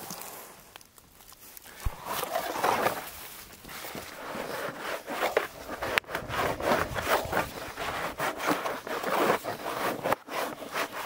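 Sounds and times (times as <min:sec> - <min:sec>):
plastic tool scraping bark: 0:03.7 - 0:11.0.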